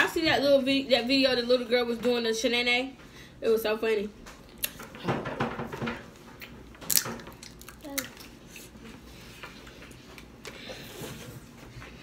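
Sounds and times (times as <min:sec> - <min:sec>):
crab shell cracking: 0:06.8 - 0:08.2.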